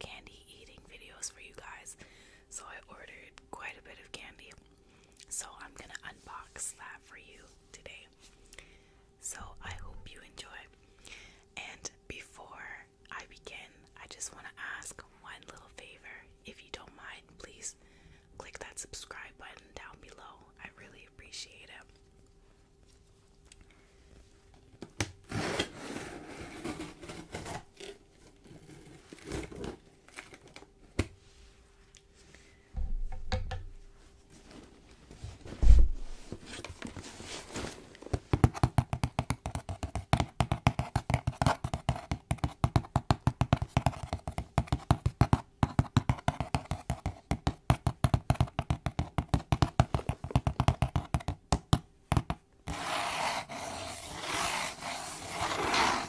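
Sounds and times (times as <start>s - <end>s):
hands handling cardboard box: 34.3s - 51.4s
fingernails scratching cardboard: 52.7s - 56.0s.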